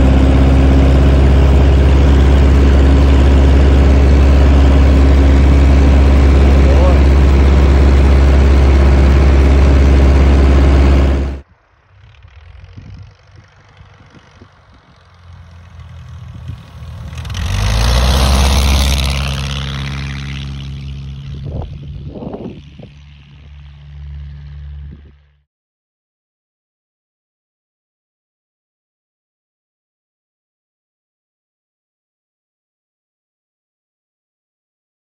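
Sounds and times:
light aircraft engine and propeller: 0.0s - 25.4s
plane engine rolling past: 0.0s - 25.4s.

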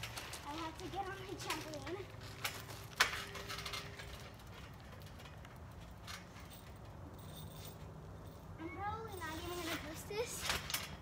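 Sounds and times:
trampoline springs clicking: 0.0s - 11.0s.

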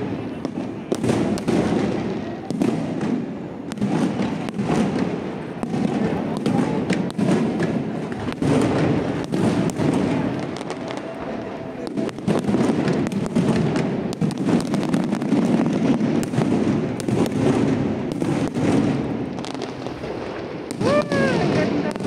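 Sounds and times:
fireworks bursting with sharp bangs: 0.0s - 22.0s.

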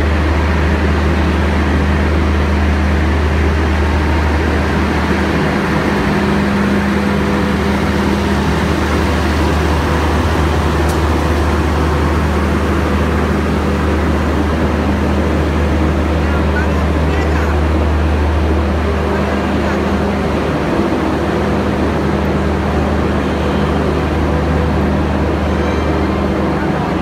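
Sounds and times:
diesel generator drone: 0.0s - 27.0s.

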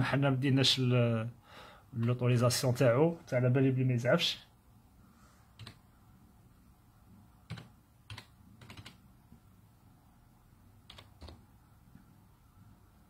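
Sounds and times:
faint keyboard keystrokes: 10.9s - 11.4s.

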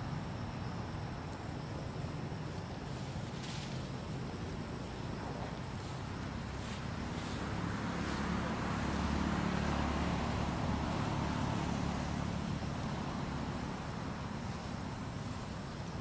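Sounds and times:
outdoor background noise: 0.0s - 16.0s
vehicle engine passing: 4.0s - 16.0s.

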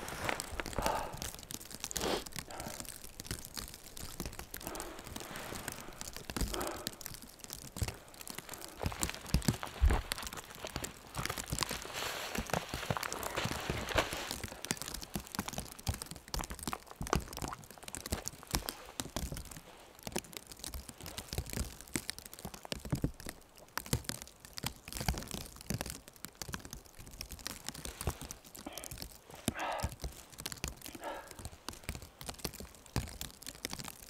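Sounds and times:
crunching in deep snow: 0.0s - 22.7s.

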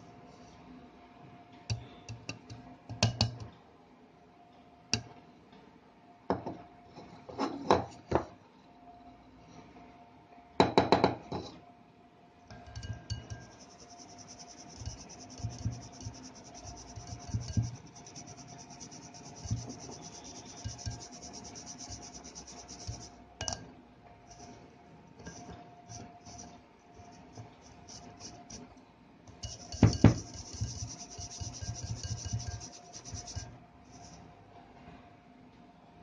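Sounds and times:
glass scraping in metal strainer: 12.8s - 23.2s, 29.4s - 34.2s
powder sifting through mesh: 13.5s - 23.2s, 29.4s - 34.2s.

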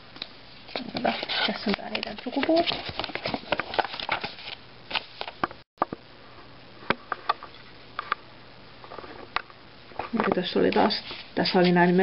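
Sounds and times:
paper crackling and rustling: 0.7s - 5.5s.

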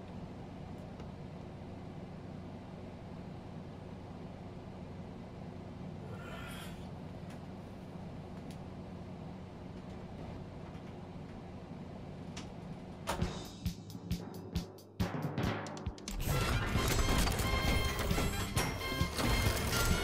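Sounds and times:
low room hum: 0.0s - 14.9s, 16.1s - 20.0s
plastic parts clicking and clattering: 16.3s - 20.0s.

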